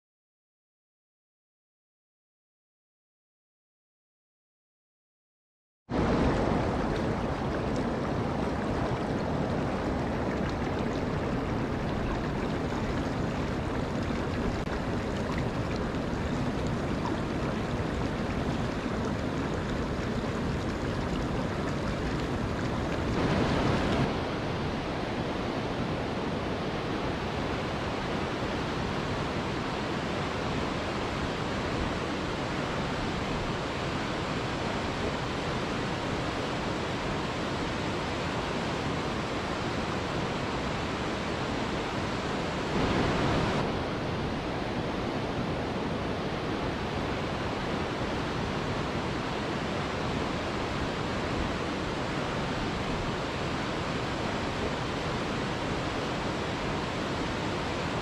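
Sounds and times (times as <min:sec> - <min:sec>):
waterfall rushing: 0:06.0 - 0:58.0.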